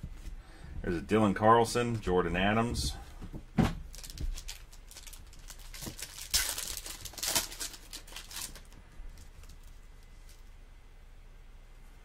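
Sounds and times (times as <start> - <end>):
cards rustling: 3.9 - 10.5.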